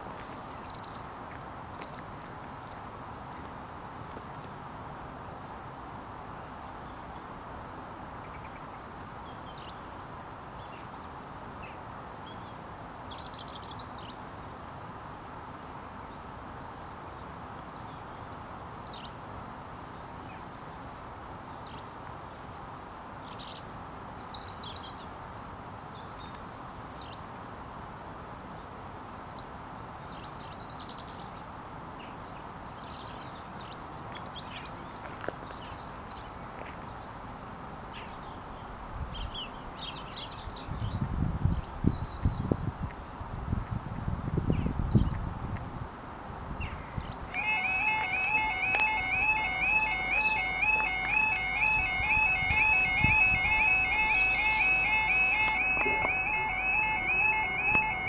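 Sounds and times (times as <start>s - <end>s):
outdoor background noise: 0.0s - 58.0s
small birds chirping: 20.0s - 28.4s, 46.6s - 58.0s.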